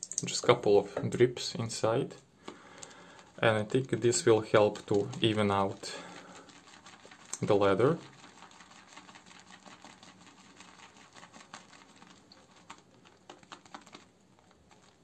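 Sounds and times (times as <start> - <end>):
shaving brush swirling lather: 3.1 - 15.0.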